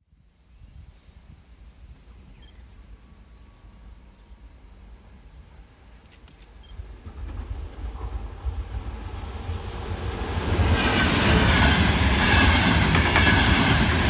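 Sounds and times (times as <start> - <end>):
insects droning: 0.1 - 14.0
faint bird chirps: 2.0 - 6.9
distant train rumbling: 2.7 - 14.0.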